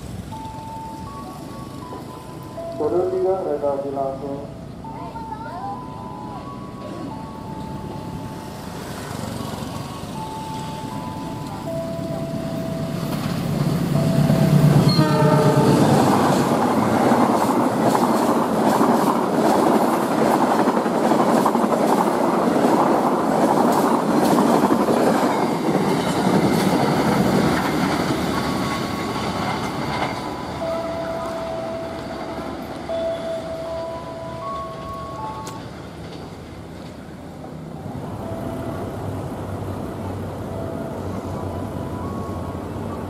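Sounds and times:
locomotive engine running: 0:05.8 - 0:43.0
wheels clattering over rail joints: 0:11.0 - 0:37.6
train horn blast: 0:14.5 - 0:16.2.

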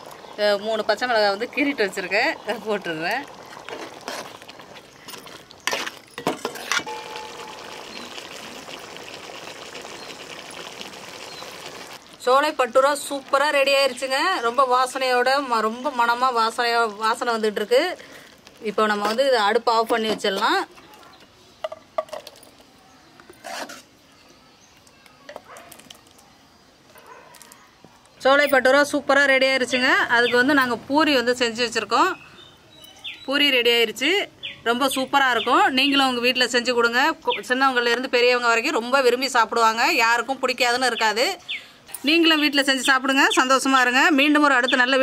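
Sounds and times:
thick gravy bubbling in a pot: 0:00.0 - 0:19.6
faint knocks and scrapes: 0:23.2 - 0:23.9
dog barking: 0:25.4 - 0:25.8, 0:27.0 - 0:27.5.

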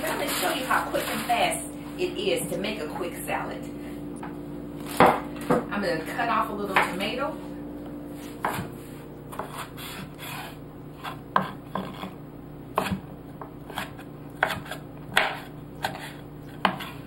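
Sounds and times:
knife striking wooden board: 0:13.7 - 0:16.0.

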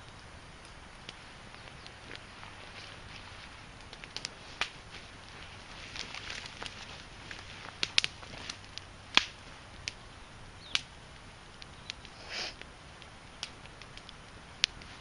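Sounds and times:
fire crackling pops: 0:00.0 - 0:15.0
brief hiss of burning wood: 0:12.0 - 0:12.8.

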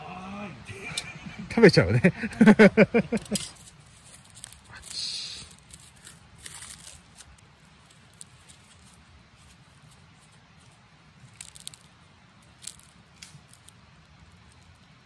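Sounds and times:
aluminium foil crinkling: 0:02.9 - 0:15.0
soft potato breaking: 0:11.3 - 0:14.9.

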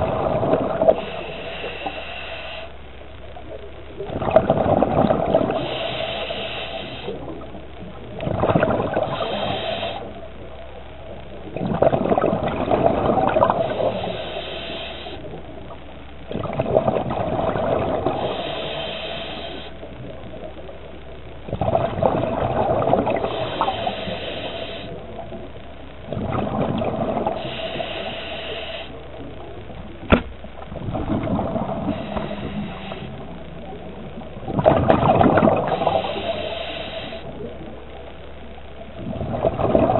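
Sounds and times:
exhaled bubbles gushing: 0:00.0 - 0:02.0, 0:03.6 - 0:10.0, 0:11.0 - 0:14.5, 0:15.2 - 0:19.0, 0:19.8 - 0:28.4, 0:29.0 - 0:37.9, 0:38.8 - 0:39.9
diver breathing through regulator: 0:00.7 - 0:02.8, 0:05.4 - 0:07.2, 0:08.9 - 0:10.1, 0:13.4 - 0:15.3, 0:17.9 - 0:19.9, 0:23.0 - 0:25.0, 0:27.2 - 0:29.0, 0:31.7 - 0:33.3, 0:35.4 - 0:37.4.

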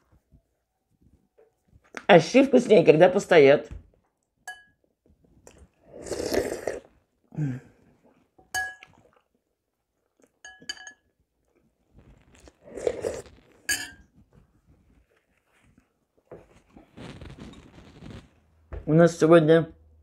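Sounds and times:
metal spoon clinking ceramic bowl: 0:04.5 - 0:04.8, 0:08.5 - 0:09.0, 0:10.4 - 0:11.1, 0:13.7 - 0:14.1
mouth sounds eating soup: 0:05.4 - 0:09.3, 0:12.4 - 0:13.7.

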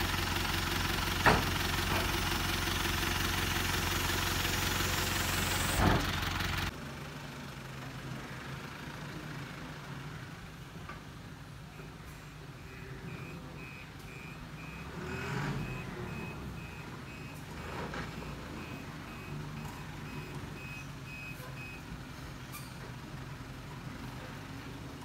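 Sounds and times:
diesel engine running: 0:00.0 - 0:25.0
reversing alarm beeps: 0:11.8 - 0:21.8.

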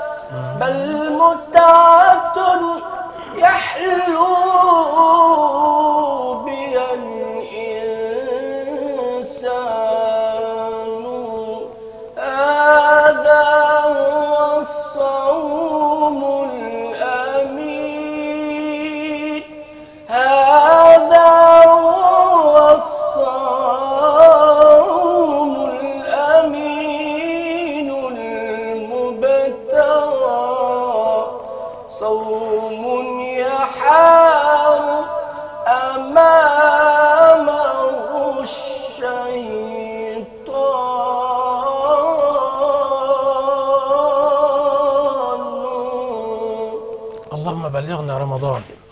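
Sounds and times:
man chanting solo: 0:00.0 - 0:19.5
man chanting unaccompanied: 0:00.0 - 0:48.9.

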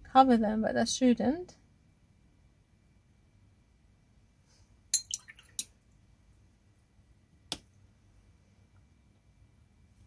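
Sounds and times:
paintbrush clinking against jar: 0:05.0 - 0:05.7.

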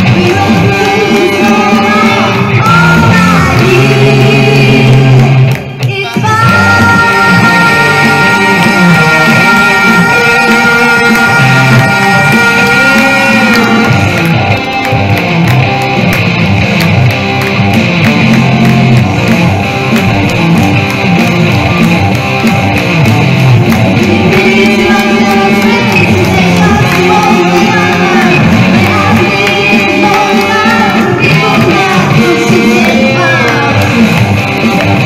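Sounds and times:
person singing: 0:00.0 - 0:14.6, 0:23.3 - 0:35.0
electric guitar through amplifier: 0:00.0 - 0:35.0
steady drum beat: 0:05.0 - 0:35.0.

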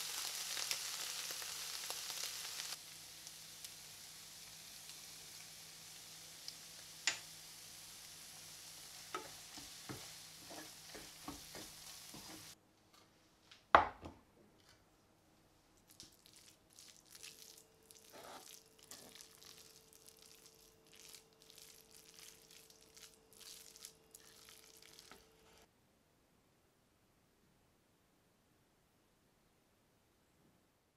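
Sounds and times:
onions sizzling in a pot: 0:00.0 - 0:12.6, 0:15.9 - 0:25.7.

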